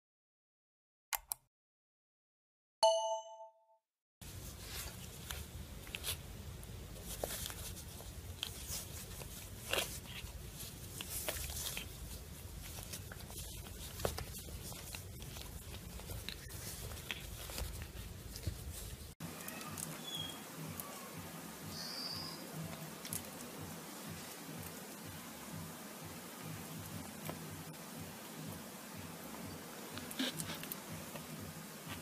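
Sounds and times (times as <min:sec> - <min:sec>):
bell-like chime: 0:02.8 - 0:03.8
low background noise: 0:04.2 - 0:32.0
cat pawing and rustling on lap: 0:06.9 - 0:19.2.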